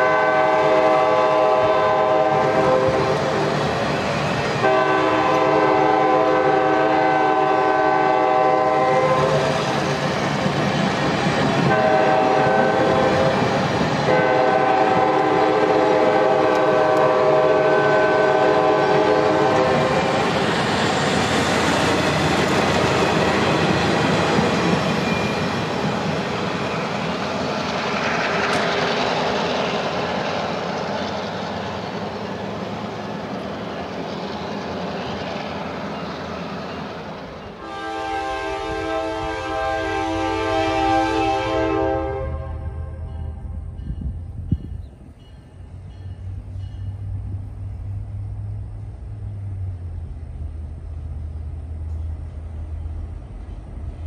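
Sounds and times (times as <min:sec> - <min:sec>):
locomotive air horn blasts: 0:00.0 - 0:03.5, 0:04.6 - 0:09.5, 0:11.7 - 0:20.2, 0:37.6 - 0:43.6
train cars rolling and clattering: 0:08.2 - 0:17.4, 0:18.6 - 0:37.6.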